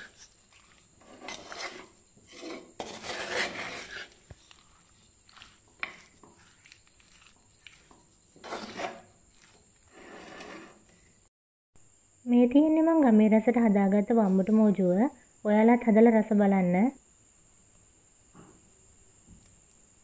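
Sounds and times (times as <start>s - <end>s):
spoon scraping clay pot: 0.0s - 11.2s.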